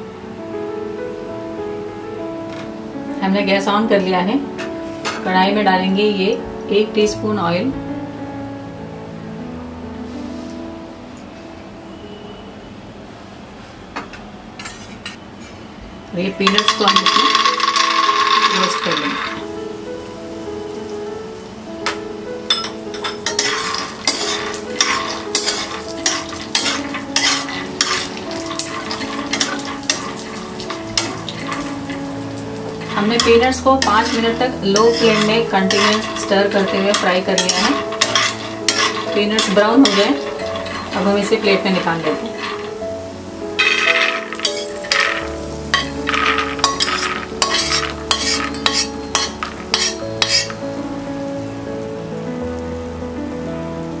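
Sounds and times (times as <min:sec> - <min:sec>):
peanuts rattling on steel plate: 0:16.4 - 0:19.4, 0:23.3 - 0:32.0, 0:32.7 - 0:42.8, 0:43.6 - 0:50.6
spatula stirring nuts in pan: 0:16.5 - 0:19.4, 0:23.0 - 0:42.8, 0:43.6 - 0:50.6.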